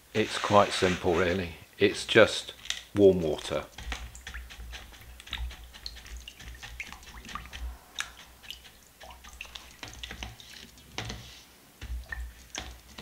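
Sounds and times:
water splashes and drips: 0:03.0 - 0:13.0.

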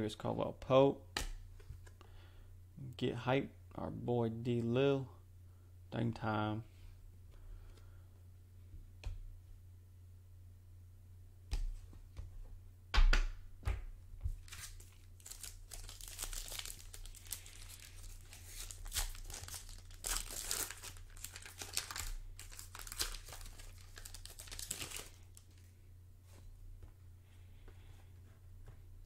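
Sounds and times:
foil wrapper crinkling and tearing: 0:14.4 - 0:25.6.

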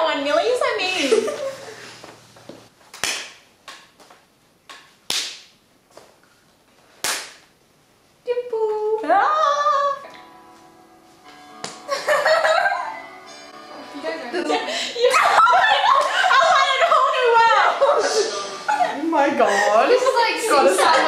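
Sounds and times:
sharp snaps or claps: 0:02.9 - 0:06.3, 0:07.0 - 0:07.5, 0:11.6 - 0:11.9.

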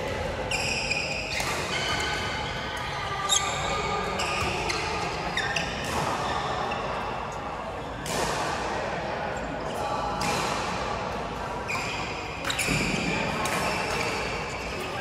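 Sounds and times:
racket hitting shuttlecock: 0:00.1 - 0:02.4, 0:04.2 - 0:06.4, 0:08.0 - 0:08.7, 0:10.2 - 0:10.9, 0:12.5 - 0:14.8
shoes squeaking on court floor: 0:00.5 - 0:02.6, 0:03.2 - 0:07.0.

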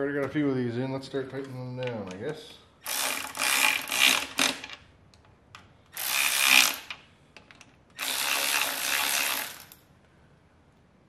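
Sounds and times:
ratchet wrench clicking: 0:02.8 - 0:04.7, 0:05.9 - 0:09.8.

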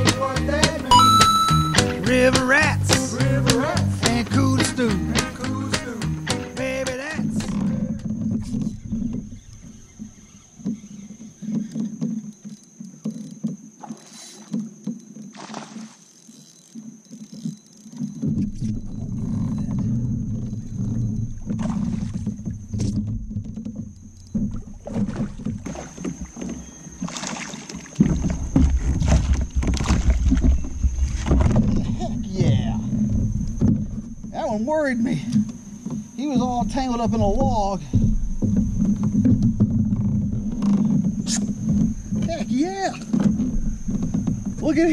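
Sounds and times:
boat and water noise: 0:00.0 - 0:44.9
thin high-pitched tone: 0:00.9 - 0:01.9
fish splashing at surface: 0:27.0 - 0:31.5.

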